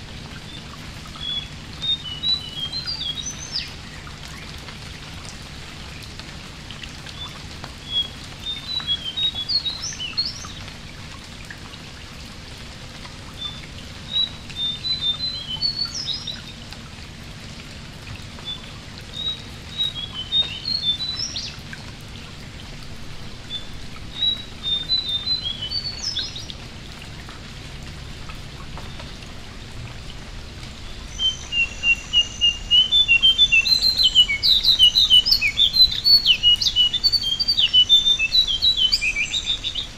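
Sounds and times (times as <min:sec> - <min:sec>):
rain falling on water: 0:00.0 - 0:39.9
songbird chirping: 0:00.4 - 0:04.4, 0:07.1 - 0:10.7, 0:13.4 - 0:16.6, 0:18.4 - 0:22.3, 0:23.5 - 0:26.6, 0:30.8 - 0:39.9.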